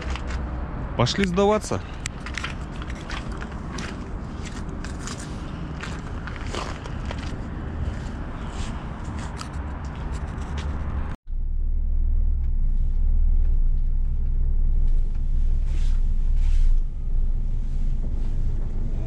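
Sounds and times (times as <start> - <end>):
truck diesel engine rumbling: 0.0 - 19.0
footsteps: 1.8 - 11.2.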